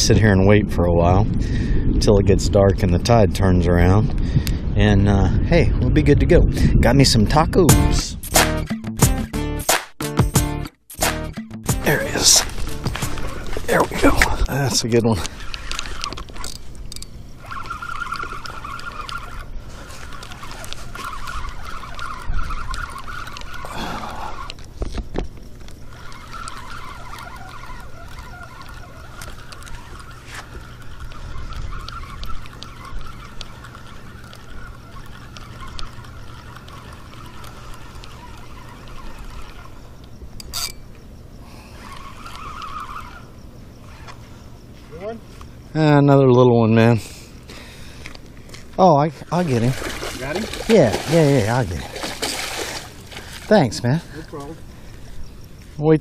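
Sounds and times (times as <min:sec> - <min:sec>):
fishing reel gears whirring: 0:11.8 - 0:45.7, 0:46.8 - 0:55.7
water splashing: 0:17.4 - 0:24.8, 0:25.4 - 0:40.2, 0:48.8 - 0:54.6.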